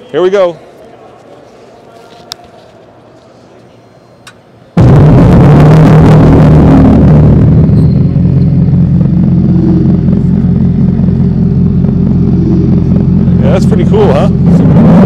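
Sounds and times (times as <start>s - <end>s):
synthetic car exhaust drone: 4.8s - 15.0s.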